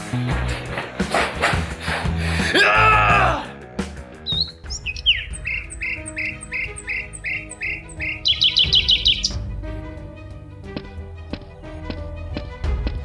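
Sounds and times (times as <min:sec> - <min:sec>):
soft background music: 0:00.0 - 0:13.0
bird chirping: 0:04.2 - 0:09.5
bird trilling: 0:04.2 - 0:09.5.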